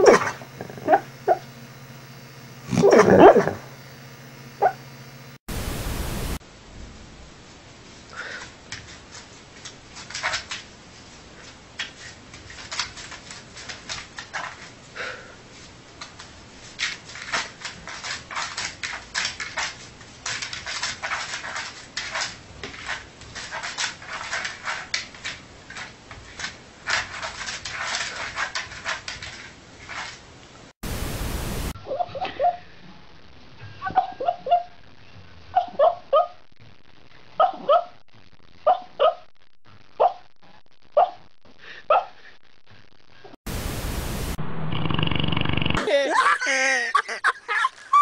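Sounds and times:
puppy yips and whimpers: 0:31.8 - 0:32.6, 0:33.8 - 0:34.7, 0:35.5 - 0:36.4.

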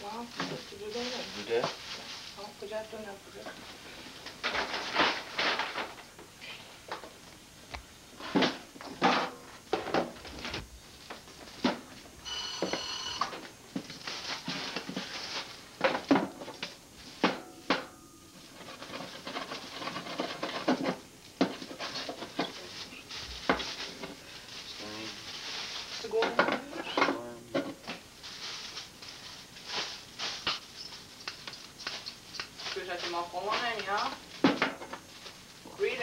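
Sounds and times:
brief ringing tone: 0:12.2 - 0:13.3.

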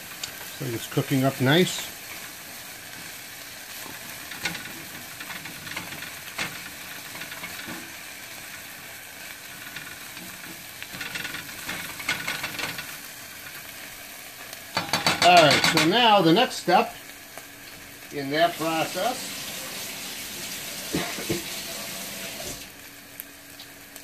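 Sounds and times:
onions sizzling in butter: 0:00.0 - 0:24.0
spatula scraping and tapping a pan: 0:03.8 - 0:08.0, 0:09.6 - 0:13.6, 0:14.7 - 0:16.0.

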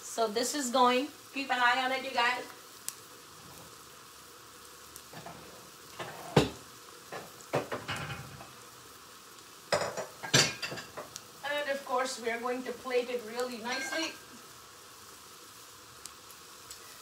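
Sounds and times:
onions sizzling in oil: 0:00.0 - 0:17.0
kitchenware knocks and clatters: 0:06.0 - 0:08.5, 0:09.8 - 0:11.0.

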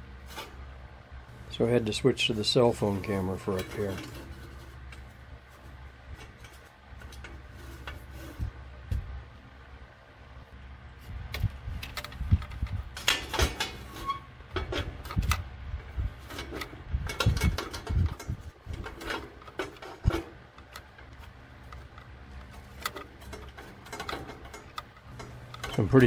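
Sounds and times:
low steady hum: 0:00.0 - 0:26.0
knocks clicks and scrapes: 0:02.7 - 0:05.2, 0:06.1 - 0:09.0, 0:11.3 - 0:26.0.

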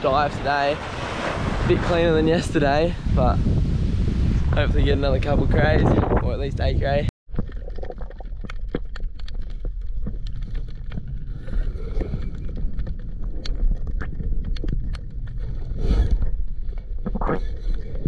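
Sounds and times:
sharp underwater clicks: 0:07.3 - 0:15.5
underwater rumble: 0:07.3 - 0:18.0.

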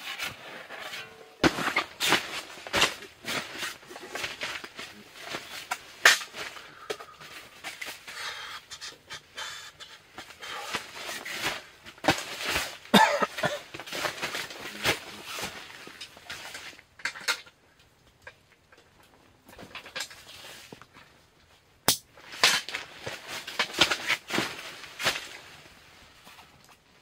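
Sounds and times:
fabric rustling: 0:22.2 - 0:27.0.

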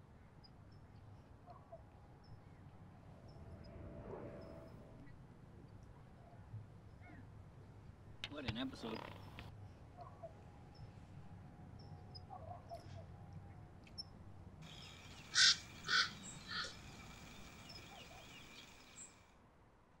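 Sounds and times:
crow calling harshly: 0:14.7 - 0:17.0.

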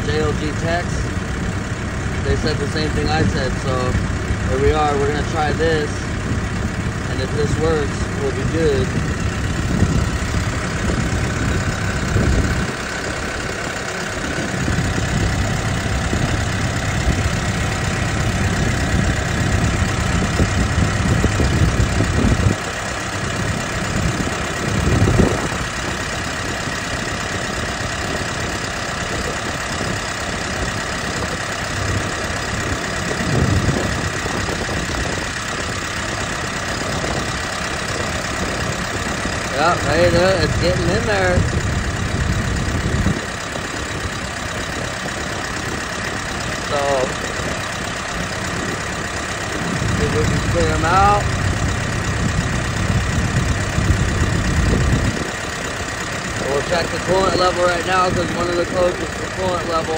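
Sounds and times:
diesel engine idling: 0:00.0 - 0:59.9.

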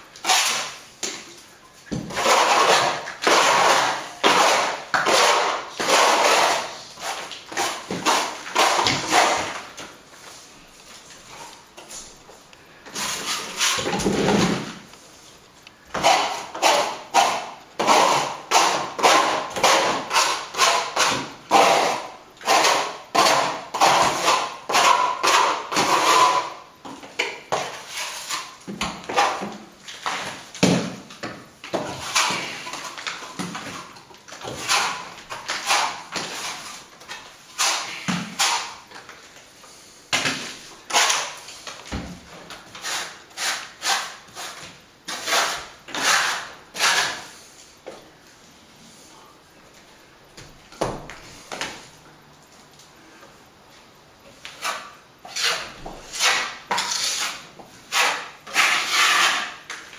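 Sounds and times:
trowel scraping plaster: 0:00.2 - 0:00.8, 0:02.0 - 0:09.7, 0:12.9 - 0:14.8, 0:15.9 - 0:26.7, 0:27.5 - 0:31.0, 0:31.7 - 0:39.0, 0:40.3 - 0:41.6, 0:42.7 - 0:47.4, 0:54.4 - 0:59.8.

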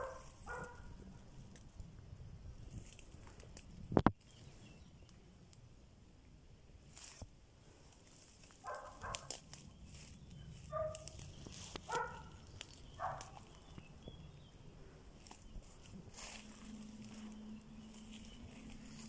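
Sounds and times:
dog barking: 0:00.0 - 0:01.0, 0:08.6 - 0:09.3, 0:10.7 - 0:11.1, 0:11.9 - 0:12.4, 0:13.0 - 0:13.4
light clicks and crackles: 0:02.6 - 0:04.4, 0:07.9 - 0:13.9.

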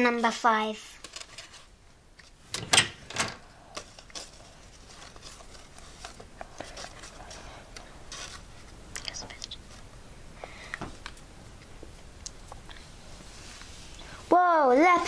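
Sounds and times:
paper cutouts rustling: 0:00.0 - 0:09.9.

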